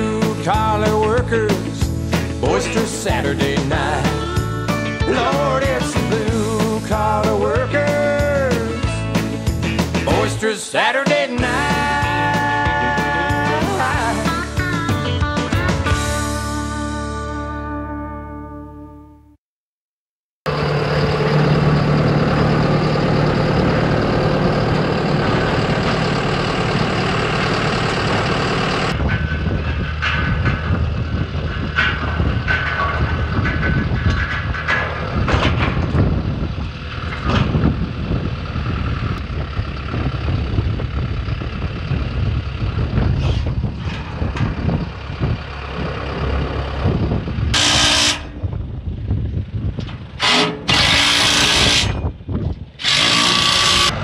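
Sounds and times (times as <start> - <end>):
heavy equipment engine running: 0.0 - 10.4, 20.5 - 54.0
metal clanks and knocks: 25.2 - 38.2, 43.0 - 45.9, 49.6 - 54.0.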